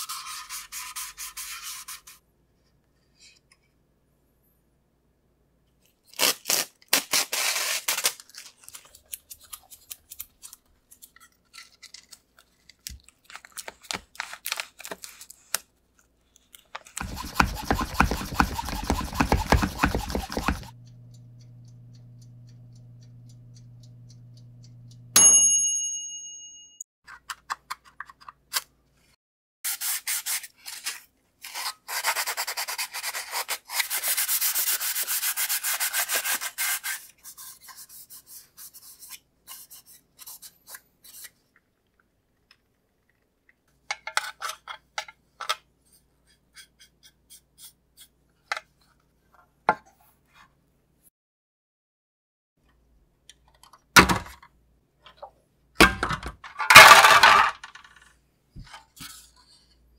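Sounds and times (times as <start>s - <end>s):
plastic film crinkling: 6.2s - 10.6s
sanding edges: 17.0s - 20.8s
oven humming: 20.2s - 25.2s
timer bell ding: 25.1s - 26.8s.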